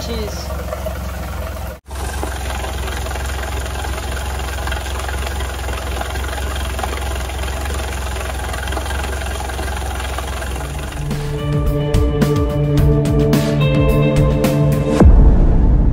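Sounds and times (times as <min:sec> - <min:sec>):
water spraying and splashing: 0:00.0 - 0:11.4
outboard motor idling: 0:00.0 - 0:13.0.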